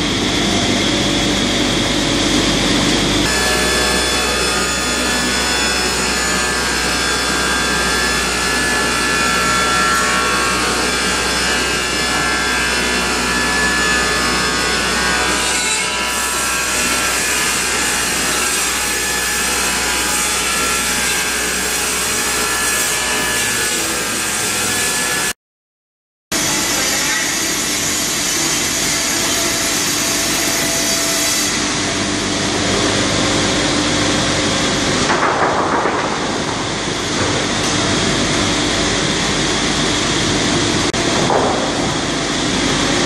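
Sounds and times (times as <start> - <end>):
saw cutting through log: 2.3 - 25.4, 26.4 - 33.5.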